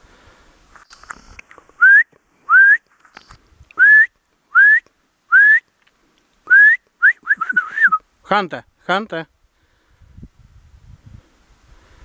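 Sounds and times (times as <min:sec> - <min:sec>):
man whistling sliding notes: 0:03.8 - 0:05.6, 0:06.5 - 0:08.0.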